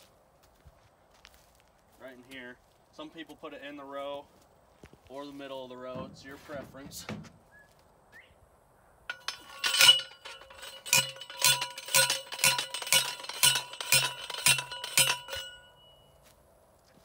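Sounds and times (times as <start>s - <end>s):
post driver metallic clangs: 5.9s - 7.4s, 9.1s - 16.0s.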